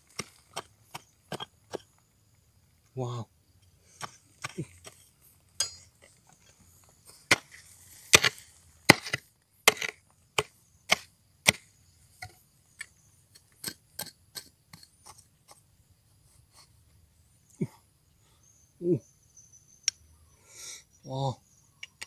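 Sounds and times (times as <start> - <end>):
hoe striking stony soil: 0.0 - 2.0, 3.9 - 15.6.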